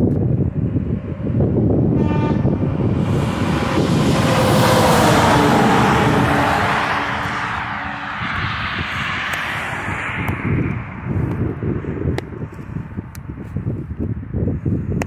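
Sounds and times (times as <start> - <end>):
vehicle driving past: 1.3 - 11.9.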